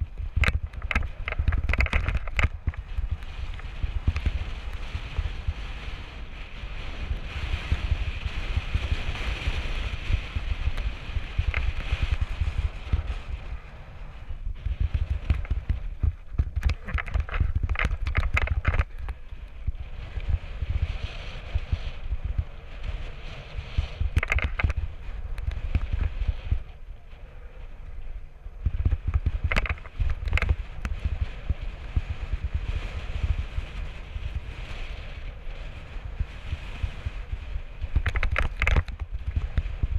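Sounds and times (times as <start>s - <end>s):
bike rattling over rocks: 0.0s - 6.1s, 14.4s - 22.4s, 23.7s - 26.6s, 28.6s - 34.1s, 36.5s - 39.9s
wind rumble on microphone: 0.0s - 39.9s.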